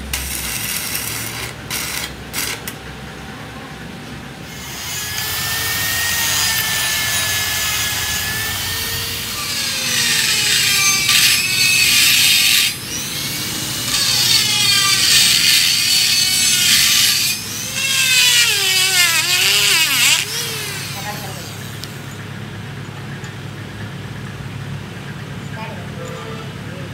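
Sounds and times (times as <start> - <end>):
die grinder grinding steel: 0.0 - 2.8, 4.5 - 22.1.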